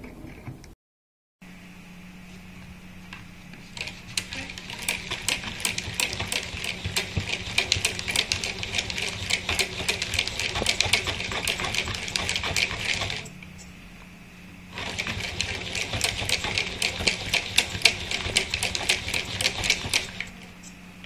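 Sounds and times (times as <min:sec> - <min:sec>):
hand-cranked generator clicking: 0:03.8 - 0:13.3, 0:14.8 - 0:20.4.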